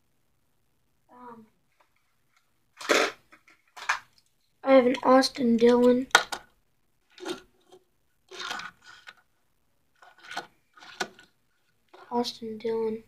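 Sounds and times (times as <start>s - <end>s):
toy car clicks and rattles: 8.3s - 9.2s, 10.0s - 11.3s.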